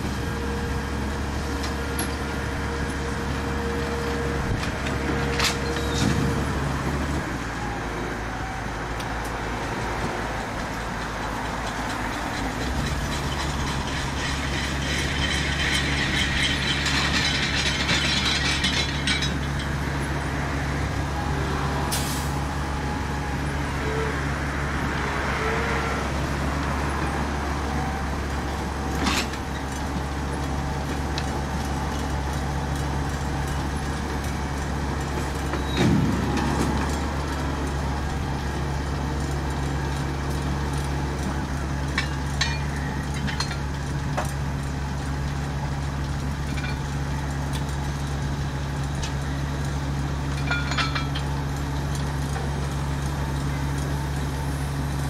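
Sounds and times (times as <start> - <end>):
heavy diesel drone: 0.0 - 55.0
machinery rattle: 10.6 - 20.3.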